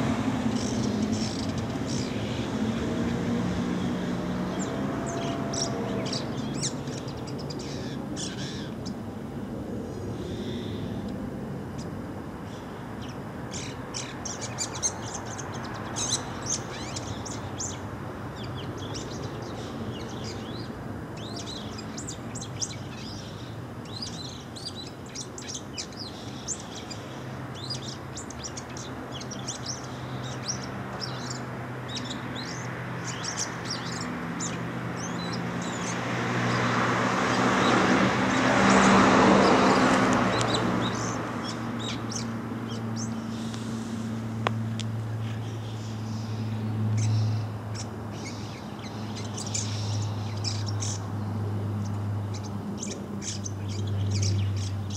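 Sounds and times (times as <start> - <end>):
broad rushing noise: 0.0 - 24.1, 24.9 - 54.9.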